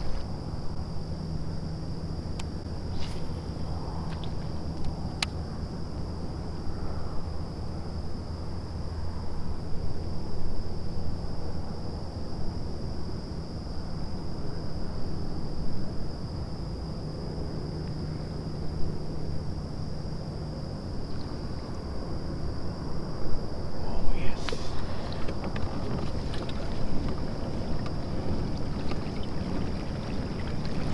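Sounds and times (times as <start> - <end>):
wind on microphone: 23.3 - 30.9.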